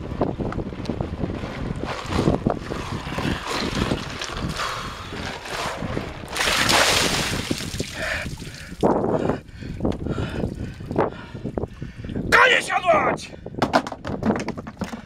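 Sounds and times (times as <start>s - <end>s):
wind on microphone: 0.0s - 15.0s
ice water splashing over person: 1.8s - 8.7s.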